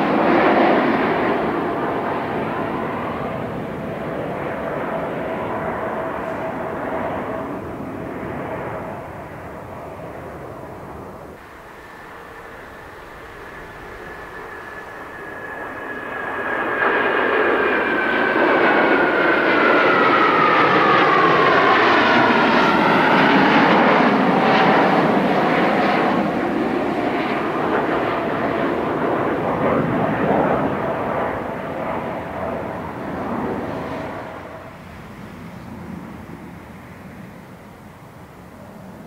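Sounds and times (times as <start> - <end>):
fighter jets roaring overhead: 0.0 - 39.0
high falling whine: 10.9 - 26.5.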